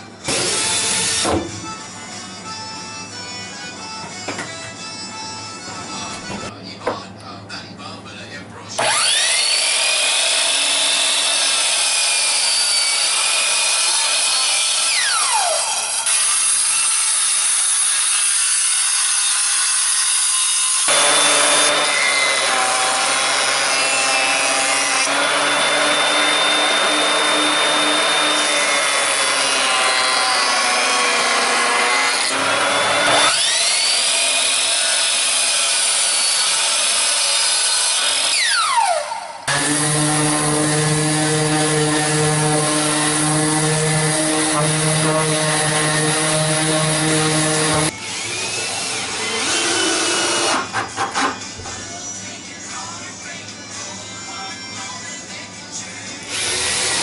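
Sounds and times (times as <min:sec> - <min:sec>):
jointer running: 0:08.8 - 0:15.9, 0:20.9 - 0:51.3
miter saw whining and cutting: 0:08.8 - 0:50.8, 0:56.3 - 0:57.0.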